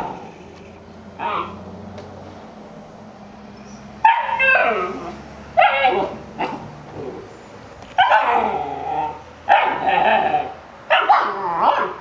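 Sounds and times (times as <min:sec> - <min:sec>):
puppy yelping barks: 0:01.2 - 0:01.6, 0:04.0 - 0:06.7, 0:08.0 - 0:12.0.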